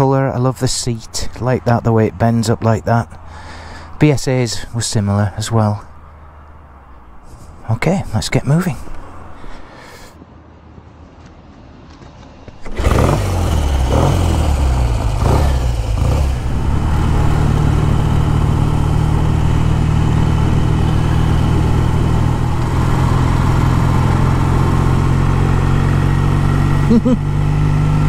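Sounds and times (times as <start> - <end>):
motorcycle engine revving: 12.5 - 28.0.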